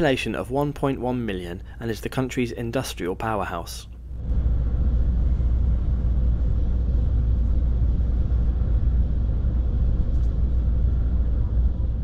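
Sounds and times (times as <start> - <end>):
faint even hum: 3.8 - 12.0
train deep rumble: 4.2 - 12.0.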